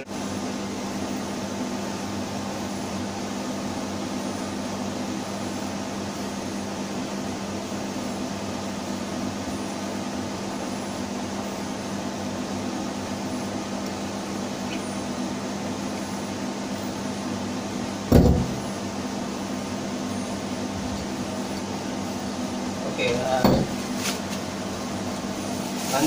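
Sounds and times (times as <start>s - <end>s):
engine room machinery hum: 0.0s - 26.0s
sharp thump: 18.1s - 18.6s.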